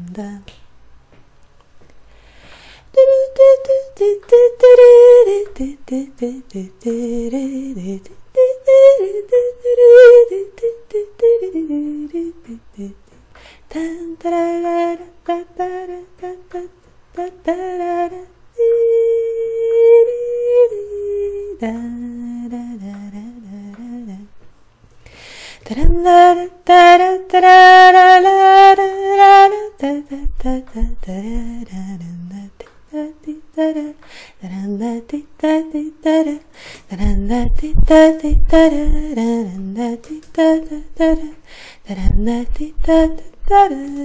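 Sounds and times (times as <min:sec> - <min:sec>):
woman humming a melody: 0:02.9 - 0:13.0, 0:13.7 - 0:24.4.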